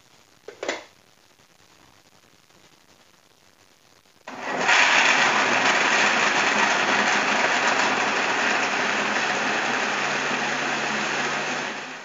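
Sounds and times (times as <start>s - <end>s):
blender running: 4.3s - 12.0s.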